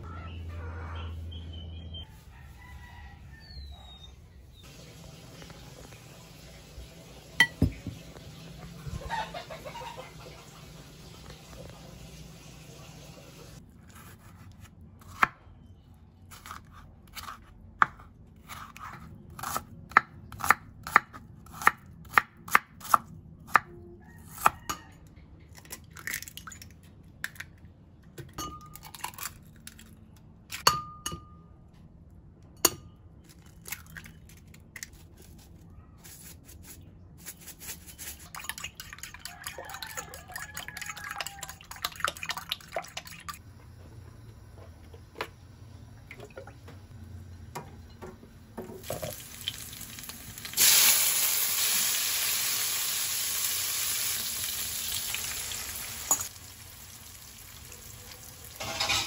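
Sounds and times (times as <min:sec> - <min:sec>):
metal spoon beating egg in bowl: 0:38.0 - 0:42.7.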